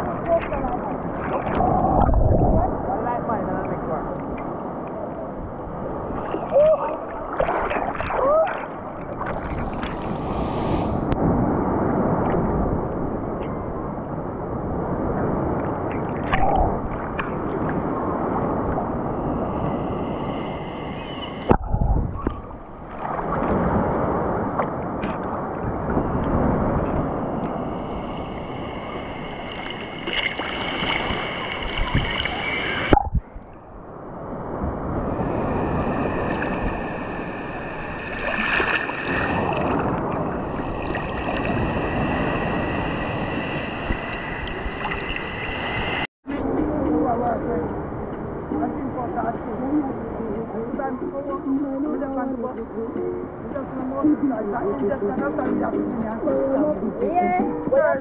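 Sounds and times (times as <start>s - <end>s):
water sloshing and splashing: 0.0s - 11.2s, 15.4s - 19.0s, 21.2s - 27.6s, 28.2s - 46.1s
sea waves breaking: 0.0s - 58.0s.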